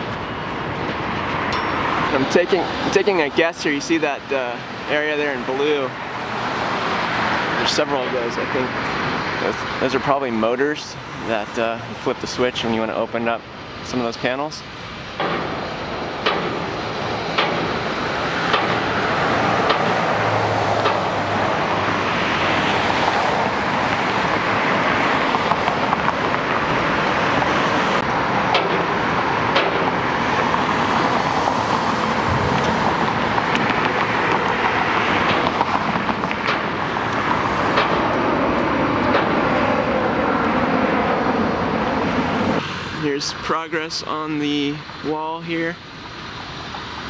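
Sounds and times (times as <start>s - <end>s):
road traffic noise: 0.0s - 47.0s
sharp clicks or knocks: 16.2s - 16.7s, 17.4s - 17.8s, 18.5s - 18.9s, 19.6s - 20.0s, 20.8s - 21.1s, 28.5s - 30.0s.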